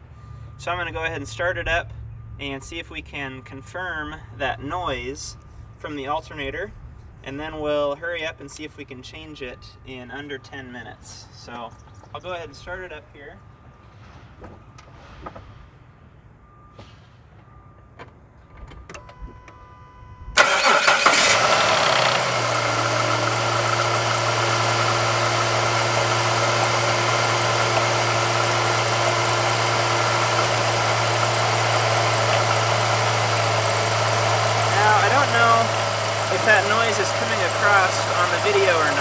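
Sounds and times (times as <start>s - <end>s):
car engine starting and idling: 17.4s - 39.0s
alternator bearing noise: 20.4s - 39.0s.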